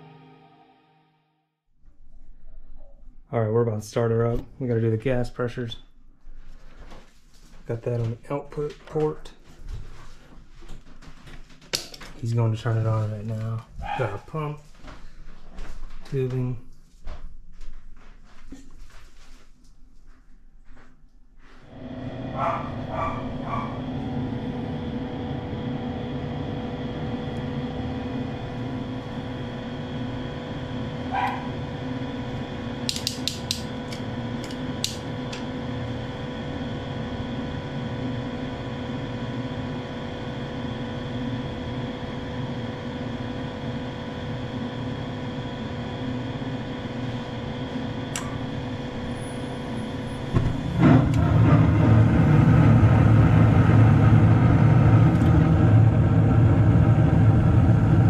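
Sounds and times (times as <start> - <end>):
furnace inducer motor humming: 3.3 - 16.6, 21.4 - 58.0
sharp clicks: 32.9 - 35.0.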